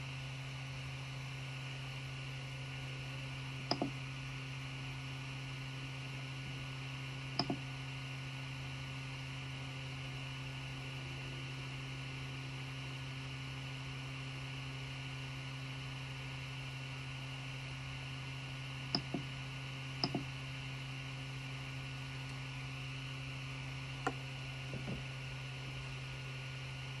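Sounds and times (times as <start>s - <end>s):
printer fan hum: 0.0s - 27.0s
control knob clicks: 7.4s - 7.6s.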